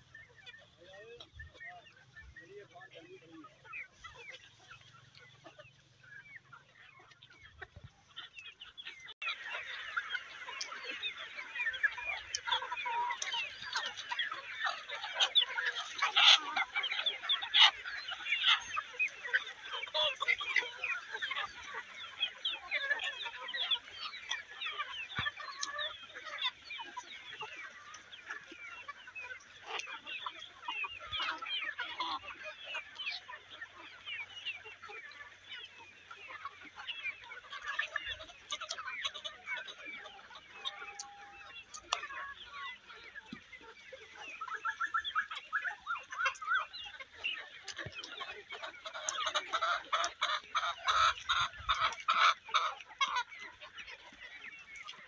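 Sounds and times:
chickens clucking and calling: 0.0s - 55.0s.

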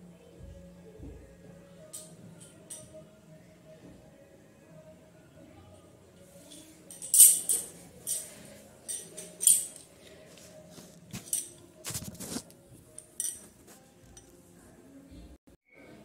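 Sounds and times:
metal bells jingling and clinking: 6.5s - 10.0s, 11.2s - 11.7s, 13.0s - 13.5s.

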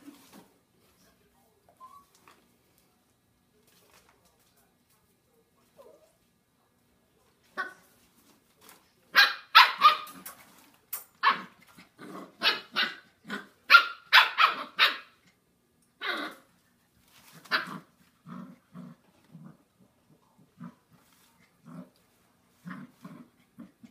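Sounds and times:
puppies yapping barks: 9.2s - 10.2s, 13.7s - 15.2s
puppies grunting and growling: 11.2s - 13.7s, 16.0s - 16.5s, 17.3s - 23.9s.

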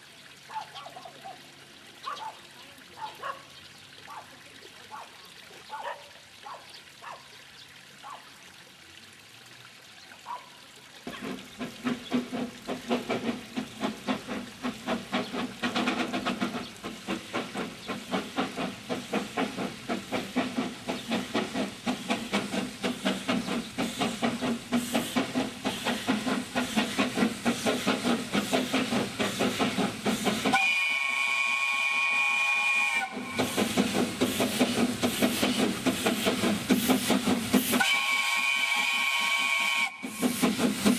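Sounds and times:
steam locomotive chuffing: 11.0s - 40.9s
steam whistle blast: 30.4s - 33.8s, 37.6s - 40.6s.

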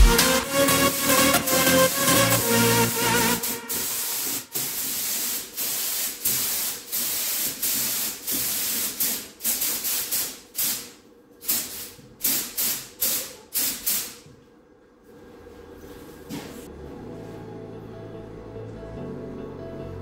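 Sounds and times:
paint spray gun hissing: 0.2s - 2.4s, 3.0s - 10.9s.

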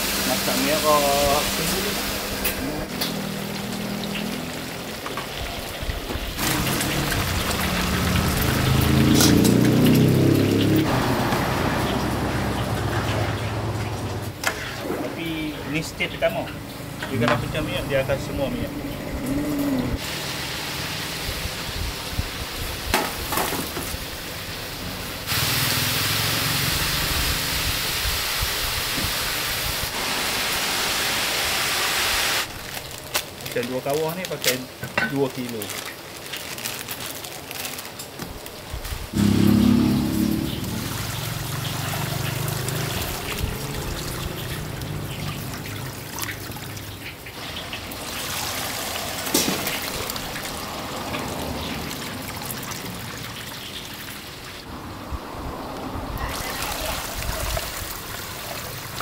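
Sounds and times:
steady frying hiss: 0.0s - 11.0s, 20.0s - 36.3s
oil sizzling and crackling in a wok: 0.0s - 14.8s, 20.0s - 54.7s, 56.3s - 59.0s.

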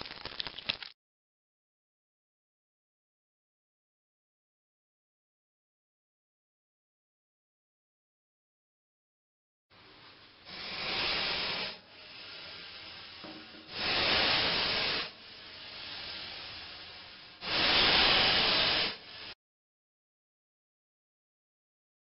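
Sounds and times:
snake hissing: 10.5s - 19.4s.

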